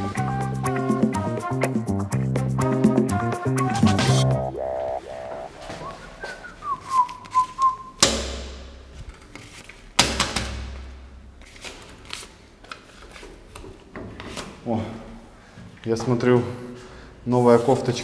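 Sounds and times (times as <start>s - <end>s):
person whistling a tune: 2.6s - 4.8s, 5.6s - 8.0s.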